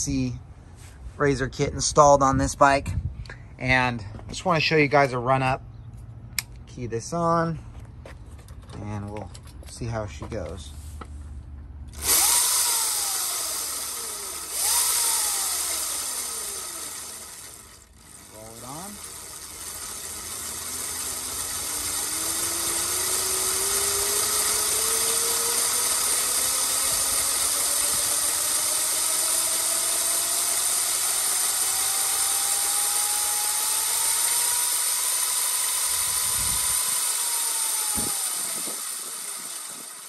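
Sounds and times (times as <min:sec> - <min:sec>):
electric motor whine: 0:11.9 - 0:40.0.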